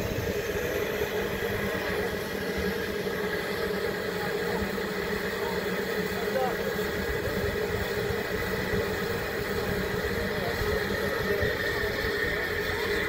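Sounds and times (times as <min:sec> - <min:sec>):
locomotive engine idling hum: 0:00.0 - 0:13.0.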